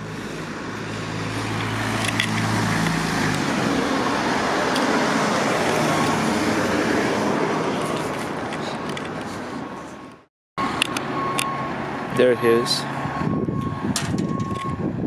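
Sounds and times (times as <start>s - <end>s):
cars passing: 0.0s - 15.0s
vehicle engine low hum: 0.0s - 15.0s.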